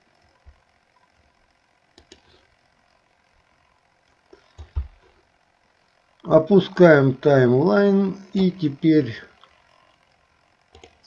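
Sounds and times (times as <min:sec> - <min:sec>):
faint computer mouse clicks: 0:01.9 - 0:02.3, 0:10.7 - 0:11.0.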